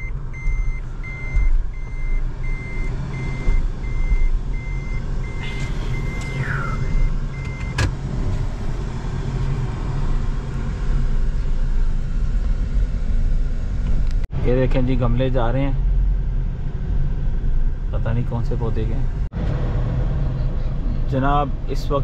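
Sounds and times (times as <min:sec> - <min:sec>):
reverse warning beeper: 0:00.0 - 0:07.8
low rumble of car moving: 0:00.0 - 0:22.0.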